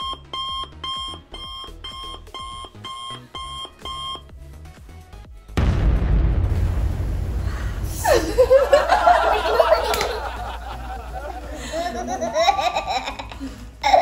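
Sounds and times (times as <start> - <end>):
two-tone electronic alarm beeping: 0.0 - 4.4.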